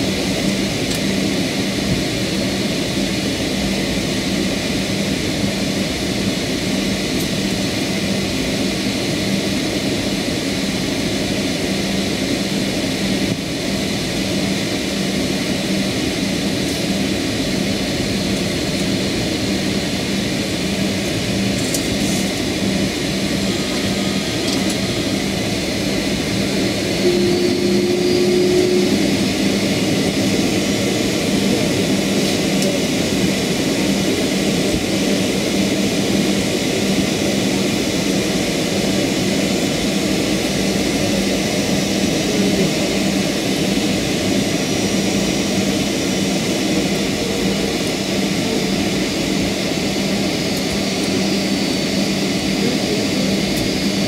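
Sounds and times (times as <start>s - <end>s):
airplane cabin engine rumble: 0.0s - 54.0s
brief high tone: 26.6s - 31.6s.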